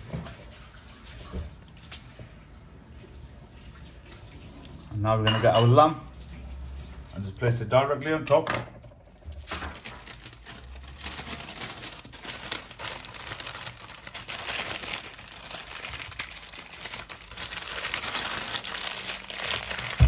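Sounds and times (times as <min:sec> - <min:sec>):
paper crinkling: 0:09.2 - 0:20.0.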